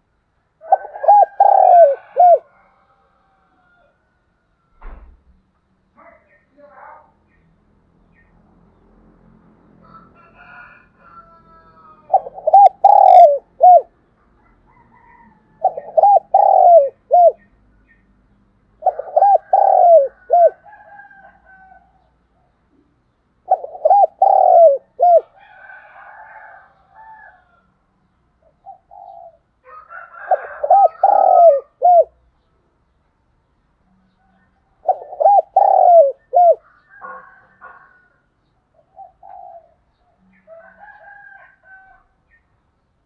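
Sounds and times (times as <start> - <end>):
dove cooing: 0.6 - 2.8, 11.2 - 17.5, 18.8 - 21.8, 22.8 - 27.5, 28.4 - 32.2, 34.8 - 38.2, 38.8 - 42.0.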